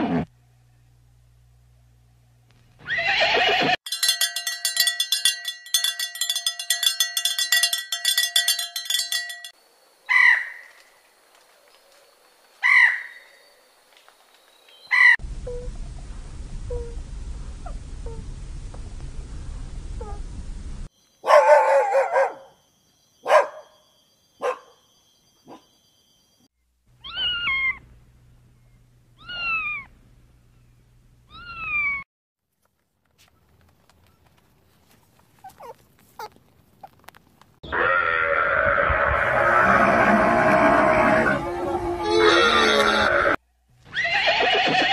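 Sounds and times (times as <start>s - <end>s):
cowbell clanking: 3.8s - 9.6s
peacock calling: 10.1s - 10.8s, 12.6s - 13.4s, 14.8s - 15.6s, 27.0s - 27.8s, 29.2s - 29.9s, 37.6s - 44.9s
cat meowing: 27.0s - 27.8s, 29.2s - 29.9s, 31.3s - 32.0s.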